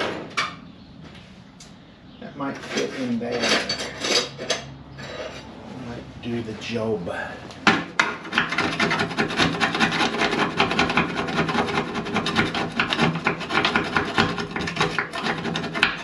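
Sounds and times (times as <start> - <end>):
hand file rasping on metal: 8.2 - 16.0.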